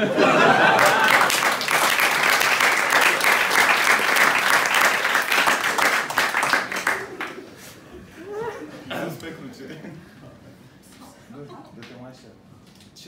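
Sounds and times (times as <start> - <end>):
audience applauding: 0.0 - 7.6.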